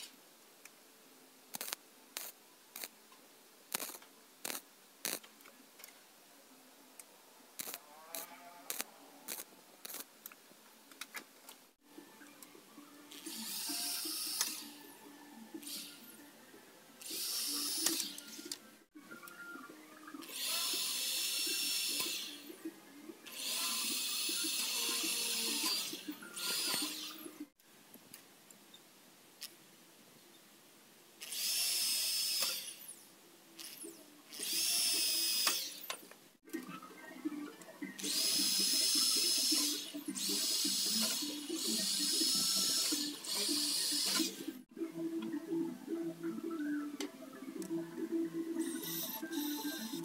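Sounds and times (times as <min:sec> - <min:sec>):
electric drill drilling into metal: 0:03.8 - 0:05.2, 0:13.1 - 0:14.7, 0:17.0 - 0:18.5, 0:20.2 - 0:22.5, 0:23.3 - 0:27.3, 0:31.2 - 0:33.0, 0:33.6 - 0:35.9, 0:38.0 - 0:44.5.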